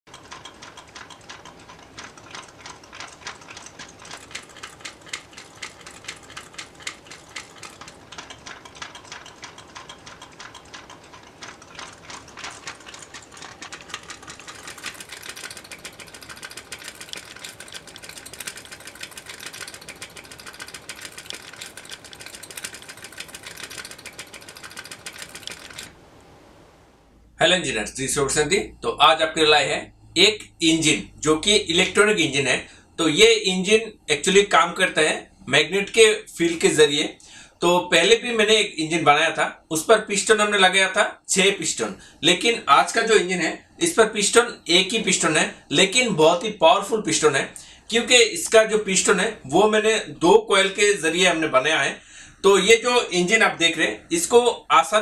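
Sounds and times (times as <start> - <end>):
small engine clattering clicks: 0.1 - 25.9.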